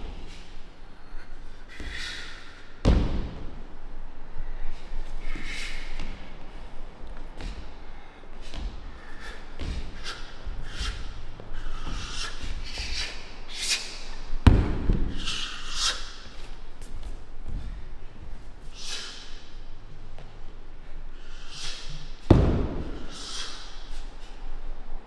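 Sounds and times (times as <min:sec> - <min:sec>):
short sharp swishes: 0:21.3 - 0:24.2.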